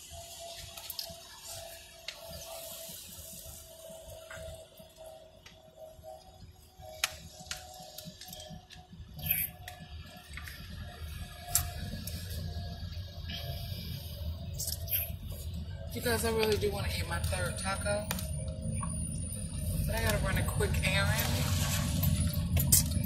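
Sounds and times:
car road noise rumble: 0.0 - 23.0
water sloshing in plastic bottle: 21.1 - 23.0.

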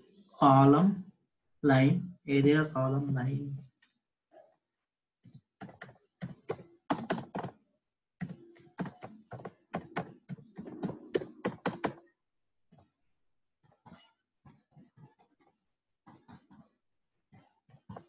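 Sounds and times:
computer keyboard typing: 5.6 - 7.6, 8.2 - 12.1.

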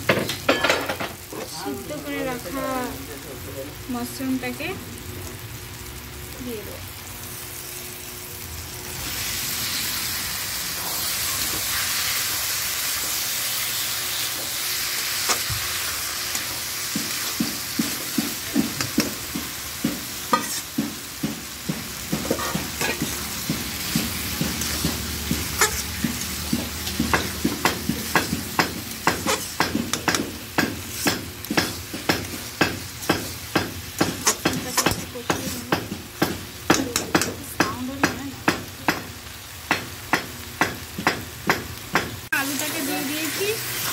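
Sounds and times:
mushrooms sizzling in hot oil: 0.0 - 43.9
spatula knocking against pan: 16.9 - 39.1.

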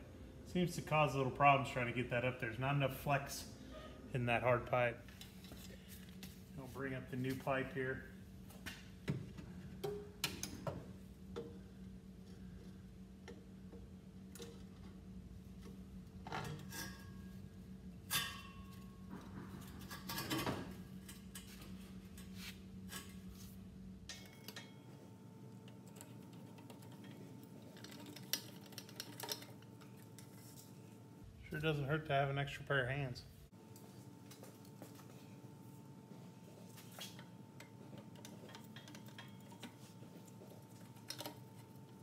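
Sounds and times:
steady low hum: 0.0 - 42.0
metal pipe clinking and scraping: 16.3 - 17.4.

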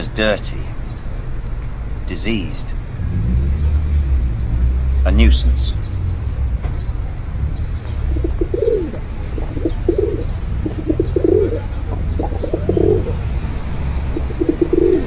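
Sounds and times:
pigeons cooing: 7.8 - 15.0.

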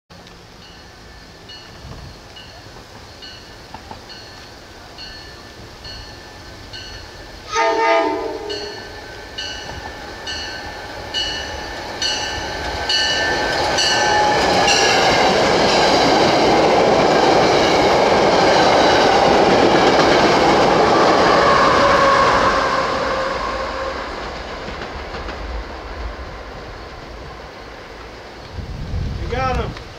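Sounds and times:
train wheels rushing on rail: 0.2 - 29.9
train horn blast: 7.4 - 9.3, 21.2 - 24.3
bell dinging: 8.5 - 14.9.

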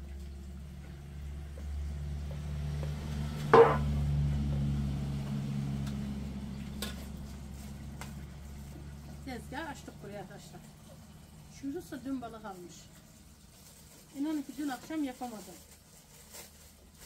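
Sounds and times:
low engine hum: 0.0 - 12.6
sharp knock: 3.5 - 4.0.

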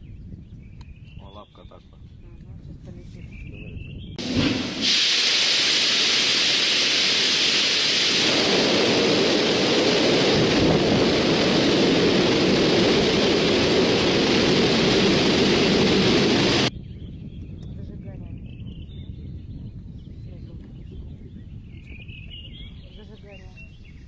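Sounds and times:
rocket engines roaring: 4.2 - 16.7.

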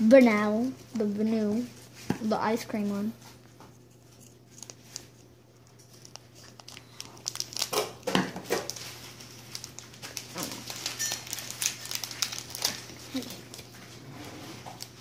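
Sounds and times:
foil wrapper crinkling: 3.8 - 15.0.

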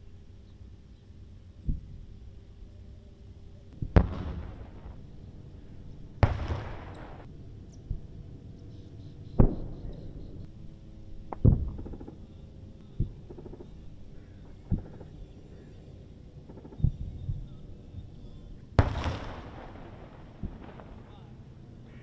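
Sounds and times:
distant explosion booms: 3.8 - 5.0, 6.2 - 7.3, 9.4 - 10.3, 18.8 - 21.1.

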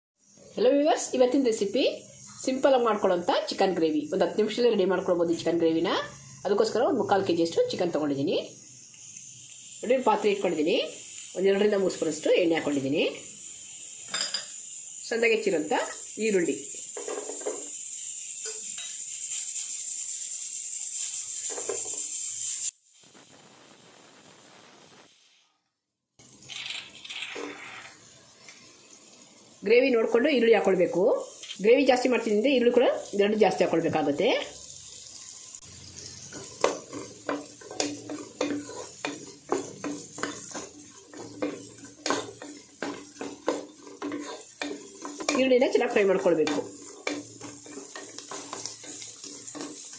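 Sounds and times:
onions sizzling in hot oil: 0.2 - 25.6, 26.2 - 49.9
spatula scraping metal pot: 36.1 - 49.9.

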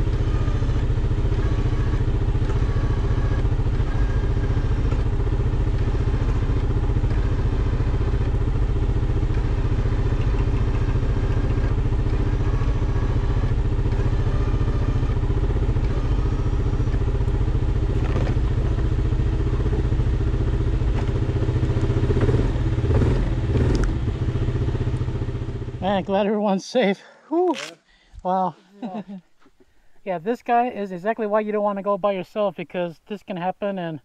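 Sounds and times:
atv engine running: 0.0 - 26.3
knocks and clattering thuds: 17.9 - 18.8.

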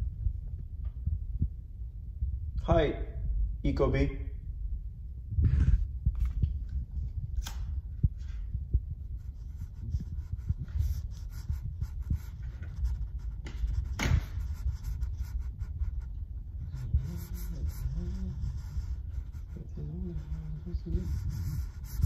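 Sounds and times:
microphone rubbing on clothing: 5.2 - 22.0.

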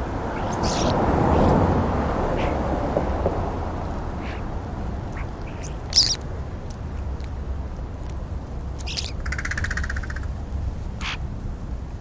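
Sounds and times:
harsh buzzy bird rasp: 0.0 - 1.6, 2.3 - 2.6, 4.2 - 6.2
starlings squawking: 0.0 - 1.6, 2.3 - 3.2, 4.2 - 6.2, 8.8 - 10.3, 11.0 - 11.3
steady low rumble: 0.0 - 12.0.

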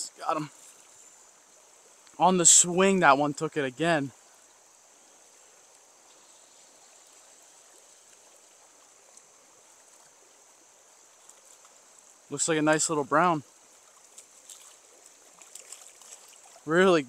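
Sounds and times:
stream water flowing: 0.0 - 17.0.

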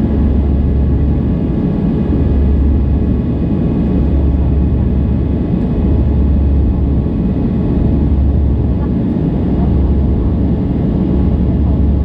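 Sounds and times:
jet engines rumbling in cabin: 0.0 - 12.0.

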